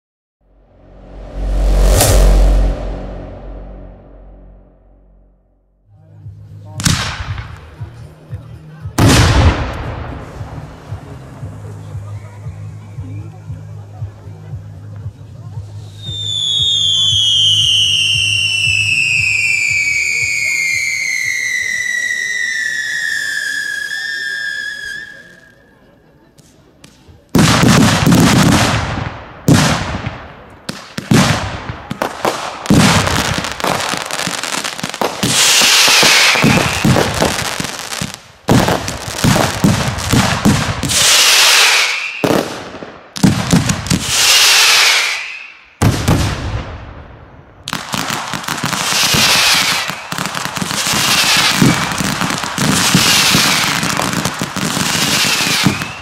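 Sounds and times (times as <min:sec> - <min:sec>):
firework bangs: 0:00.8 - 0:05.1, 0:09.0 - 0:11.7, 0:16.2 - 0:25.4, 0:26.8 - 0:56.0
screaming firework whistles: 0:16.0 - 0:25.7, 0:41.0 - 0:42.3, 0:44.1 - 0:45.7, 0:49.0 - 0:50.2, 0:54.8 - 0:56.0
whistling firework: 0:16.0 - 0:25.8, 0:32.0 - 0:46.4, 0:47.7 - 0:56.0.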